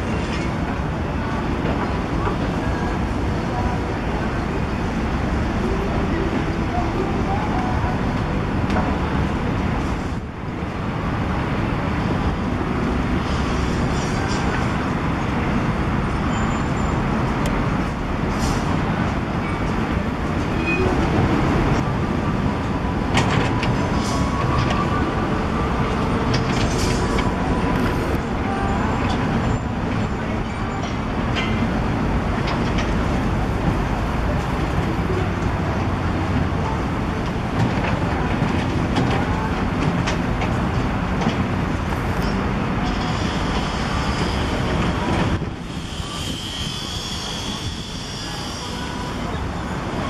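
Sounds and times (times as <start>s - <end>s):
diesel engines running: 0.0s - 50.0s.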